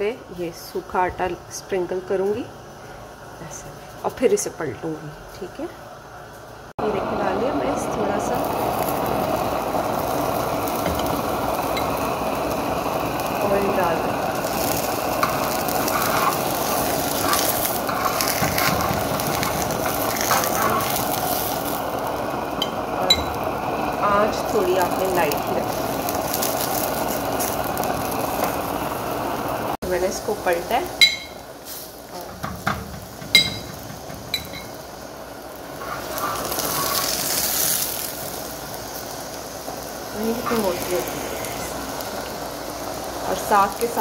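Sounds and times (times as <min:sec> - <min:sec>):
fat sizzling: 0:06.4 - 0:44.0
spatula clinking on griddle: 0:31.0 - 0:31.4, 0:32.3 - 0:34.8.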